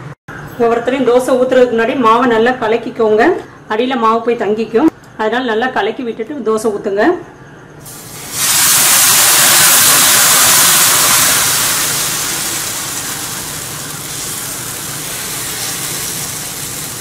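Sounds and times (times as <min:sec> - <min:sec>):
batter sizzling on hot griddle: 0:07.8 - 0:17.0.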